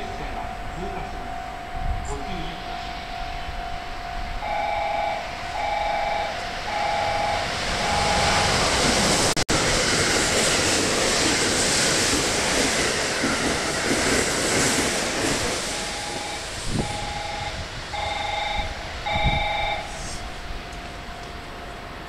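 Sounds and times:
electric train passing at speed: 0:00.0 - 0:22.0
two-tone beep: 0:15.8 - 0:20.0.

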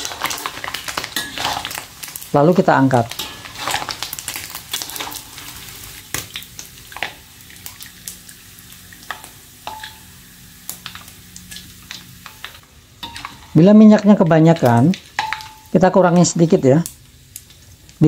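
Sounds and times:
hot oil sizzling in a wok: 0:00.0 - 0:18.0
metal clinking against wok: 0:01.0 - 0:01.8, 0:03.1 - 0:04.0, 0:09.1 - 0:10.1, 0:13.0 - 0:13.6, 0:15.2 - 0:15.8.

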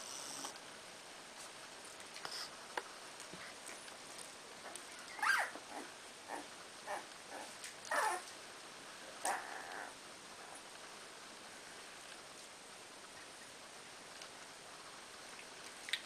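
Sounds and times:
puppies squeaking and whimpering: 0:05.0 - 0:08.2
puppy squeal falling in pitch: 0:05.1 - 0:05.6.

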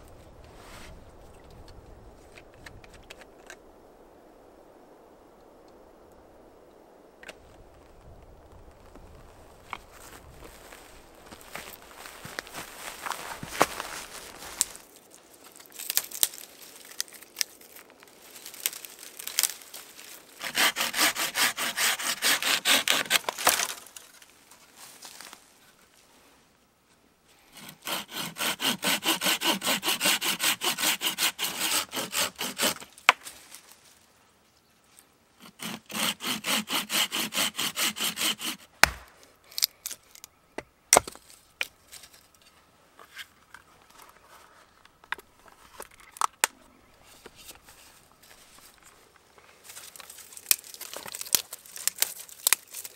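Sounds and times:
dry twigs snapping: 0:11.3 - 0:20.2, 0:22.9 - 0:24.4, 0:38.8 - 0:41.8, 0:49.7 - 0:52.9
hand saw cutting a branch: 0:20.4 - 0:23.8, 0:27.5 - 0:33.1, 0:35.4 - 0:39.0
sharp cracks and knocks: 0:22.8 - 0:24.3, 0:38.7 - 0:41.8, 0:49.9 - 0:52.9.

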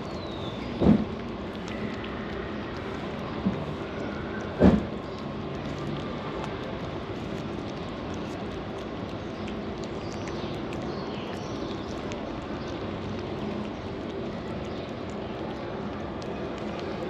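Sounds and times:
street hum and hiss: 0:00.0 - 0:17.0.

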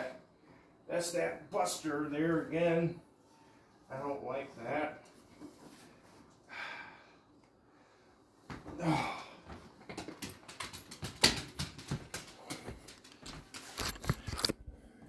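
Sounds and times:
man grunting: 0:08.7 - 0:09.4
footsteps: 0:09.5 - 0:14.5.

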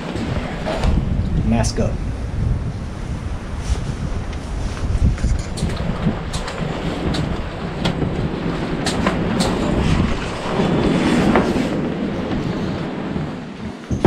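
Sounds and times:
wind rumble on microphone: 0:00.0 - 0:14.0
footsteps walking: 0:03.6 - 0:14.0.

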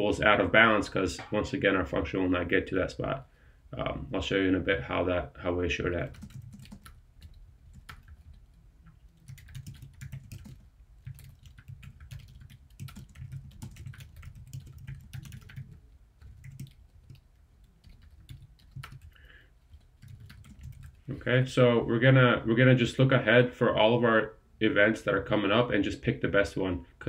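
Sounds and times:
typing on computer keyboard: 0:06.1 - 0:08.5, 0:09.1 - 0:21.0.

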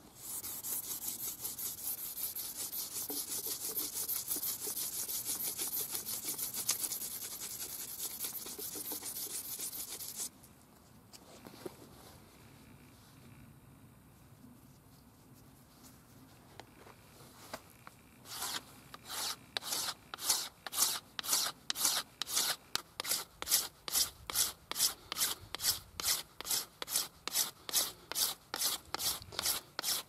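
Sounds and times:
flint scraping wooden shaft: 0:00.3 - 0:10.3, 0:18.3 - 0:30.0.

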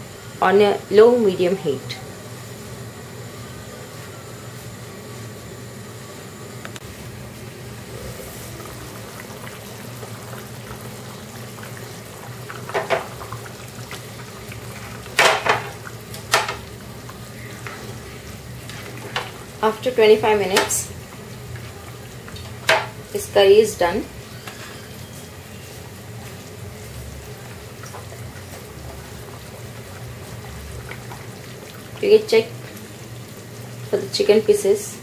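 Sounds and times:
curry bubbling: 0:06.8 - 0:34.4
spatula knocking against pan: 0:22.6 - 0:23.0.

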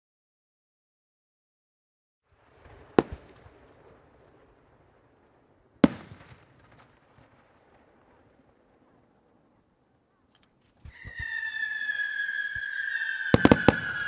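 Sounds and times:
small firework pops: 0:02.4 - 0:08.9, 0:12.4 - 0:14.0
firework shells bursting: 0:10.3 - 0:14.0.

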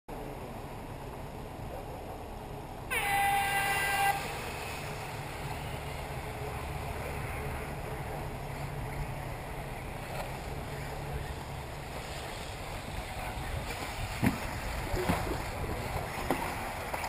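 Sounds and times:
steady low hum: 0:00.1 - 0:17.0
electronic horn tone: 0:02.9 - 0:04.9.

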